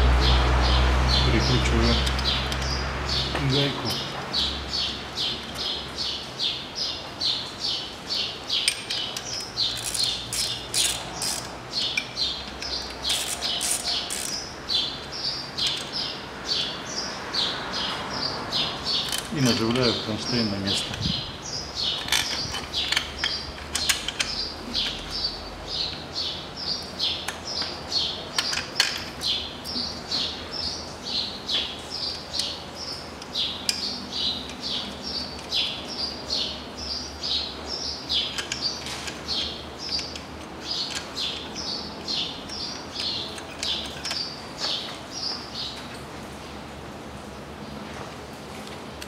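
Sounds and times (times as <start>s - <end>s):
bird chirping: 0.2s - 28.6s
hand tools clicking on metal: 8.6s - 14.4s, 38.1s - 44.8s.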